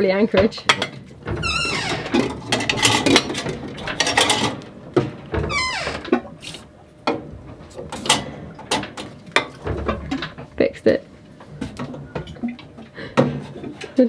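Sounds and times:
clicks and knocks: 0:00.6 - 0:06.4.

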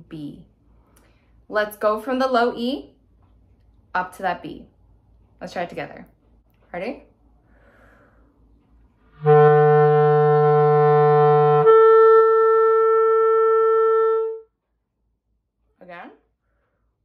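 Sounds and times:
clarinet playing held notes: 0:09.1 - 0:14.5.

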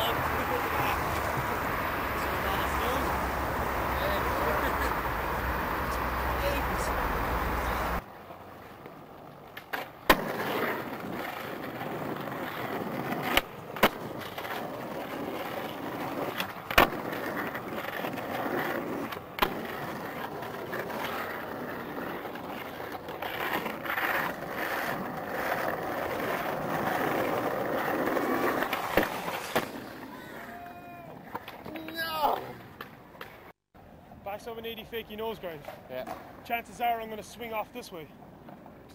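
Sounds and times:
skateboard wheels rolling on concrete: 0:00.0 - 0:38.9
skateboard clacking on ground: 0:08.0 - 0:33.5, 0:35.5 - 0:36.4.

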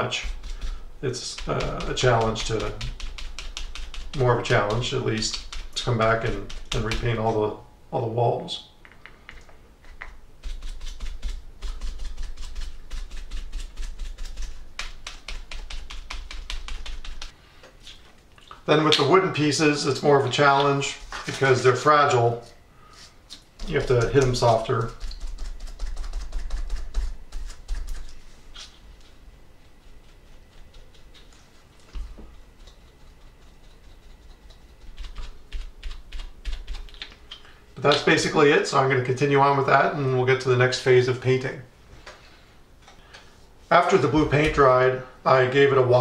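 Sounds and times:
sponge dabbing on wood: 0:00.0 - 0:07.6, 0:09.8 - 0:17.4, 0:20.3 - 0:37.2.

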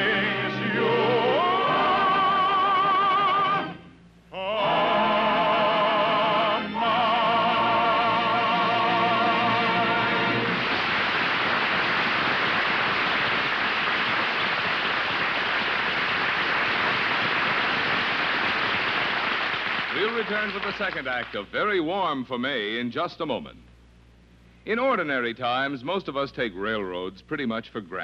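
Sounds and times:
operatic singing with orchestra: 0:00.0 - 0:03.8, 0:04.4 - 0:10.6
audience applauding: 0:09.8 - 0:21.5.

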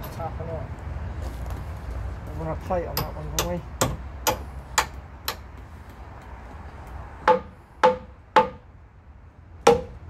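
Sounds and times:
hammer striking metal pin: 0:03.0 - 0:05.4.

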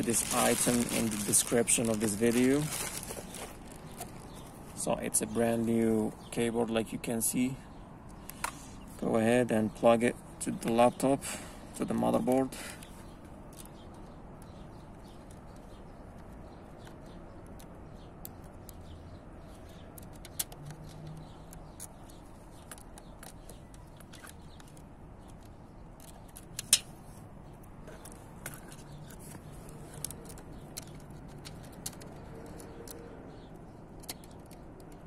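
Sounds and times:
low outdoor background: 0:00.0 - 0:35.0
small clicks of a connector: 0:13.5 - 0:26.9.

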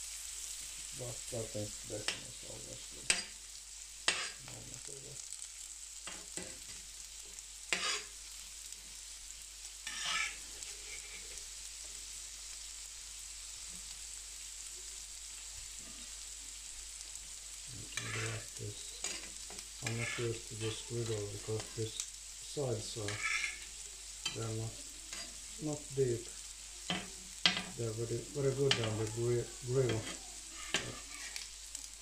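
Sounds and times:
bacon sizzling: 0:00.0 - 0:32.0
fat crackling: 0:17.7 - 0:32.0.

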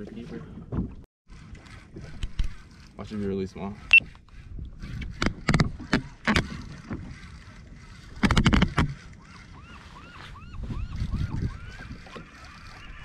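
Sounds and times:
fishing tackle knocks and clicks: 0:08.2 - 0:09.0.

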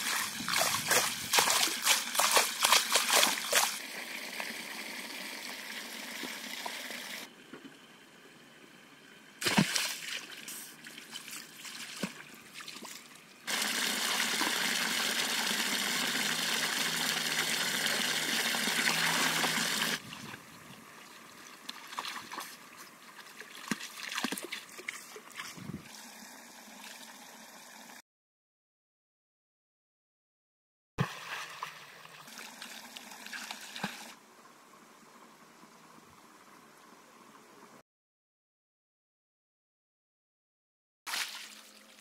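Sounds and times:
sharp water splash: 0:00.0 - 0:03.8, 0:09.4 - 0:14.7, 0:41.1 - 0:41.8
wading splashes: 0:00.0 - 0:03.8, 0:09.4 - 0:14.5, 0:21.6 - 0:25.6, 0:41.1 - 0:42.0
water pouring into pool: 0:00.0 - 0:07.3, 0:13.5 - 0:20.1, 0:41.1 - 0:42.0.

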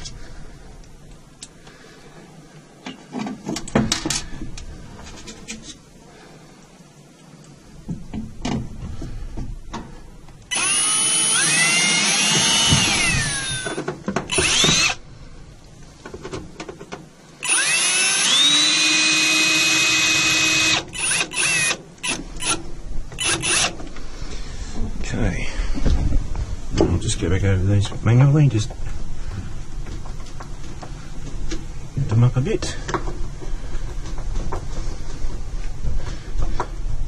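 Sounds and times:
cordless drill driving screws: 0:10.5 - 0:15.0, 0:17.4 - 0:22.6, 0:23.2 - 0:23.8
drill trigger blips: 0:10.5 - 0:15.0, 0:17.4 - 0:22.6.

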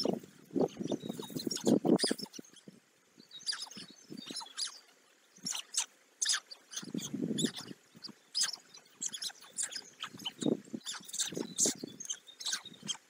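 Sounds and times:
stork nestlings cheeping: 0:00.0 - 0:02.6, 0:05.4 - 0:13.0.

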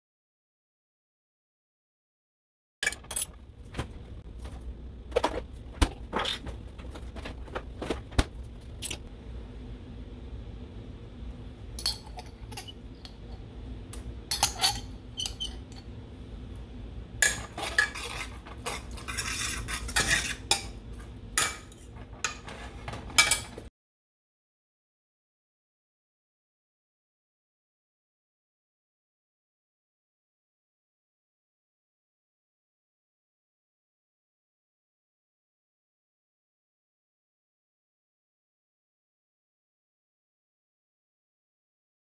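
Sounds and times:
faint steady hum: 0:02.8 - 0:23.7
utensil scraping a pan: 0:14.3 - 0:15.8, 0:17.2 - 0:23.7.

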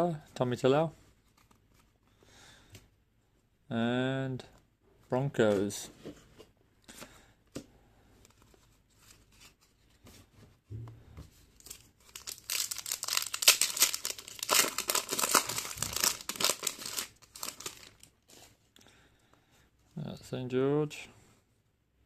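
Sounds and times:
soft thump: 0:10.7 - 0:11.3
foil wrapper crackling: 0:11.6 - 0:18.1.

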